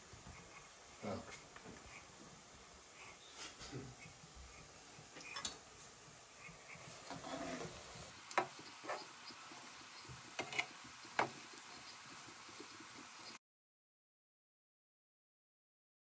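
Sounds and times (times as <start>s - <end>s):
batter sizzling in hot oil: 0.0s - 13.4s.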